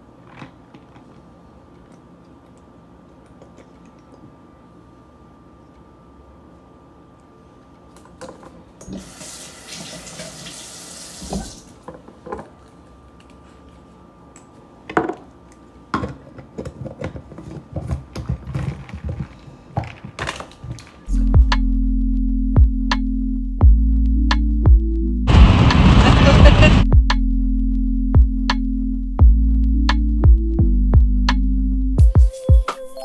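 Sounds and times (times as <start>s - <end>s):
liquid pouring: 9.0s - 11.7s.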